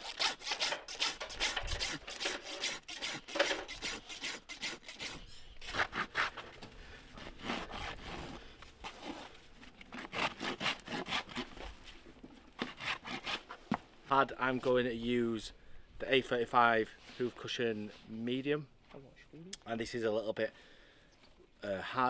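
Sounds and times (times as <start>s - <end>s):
rasp scraping a hoof: 0.0s - 11.9s, 12.6s - 13.8s.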